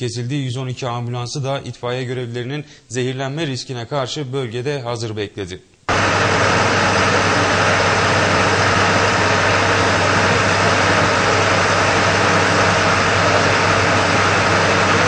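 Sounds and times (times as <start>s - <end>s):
fire engine pump running: 5.9s - 15.0s
loud even hiss: 5.9s - 15.0s
low engine hum: 5.9s - 15.0s.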